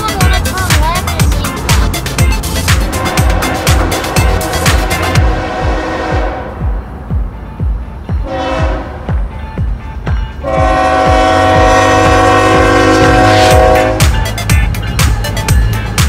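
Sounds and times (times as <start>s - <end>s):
music with steady beat: 0.0s - 16.0s
locomotive horn blasts: 2.7s - 6.9s, 8.2s - 9.1s, 10.4s - 14.3s.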